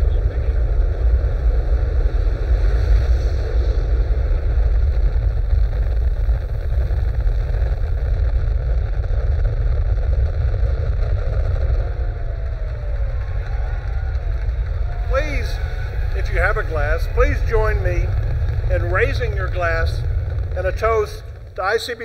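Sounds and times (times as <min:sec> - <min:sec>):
rocket launch rumble: 0:00.0 - 0:22.0.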